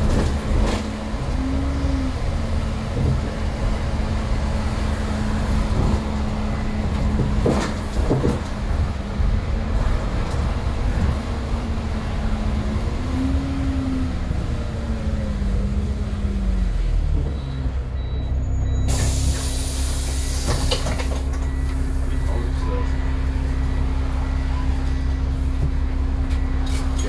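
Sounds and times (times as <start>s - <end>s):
bus engine: 0.0s - 27.0s
loud air hiss: 18.9s - 20.7s.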